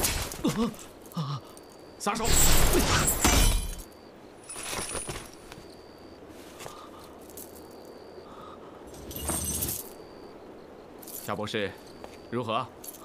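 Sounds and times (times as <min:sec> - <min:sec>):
metal clinking and jangling: 0:08.8 - 0:10.1, 0:11.0 - 0:12.0, 0:12.8 - 0:13.0.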